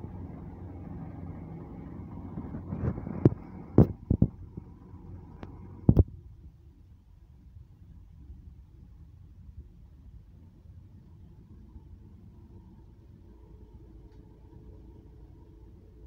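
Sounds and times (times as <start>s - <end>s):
truck engine running: 0.0s - 6.1s.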